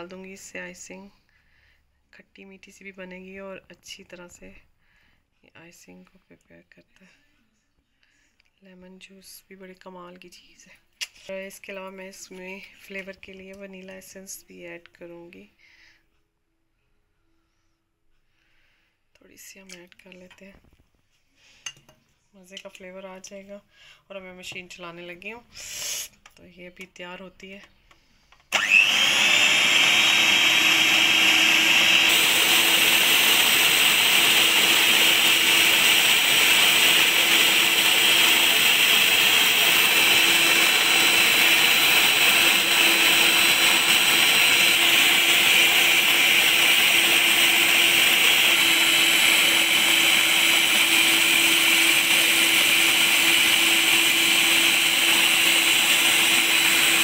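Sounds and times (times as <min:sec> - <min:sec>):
stand mixer motor whine: 0:28.5 - 0:57.0.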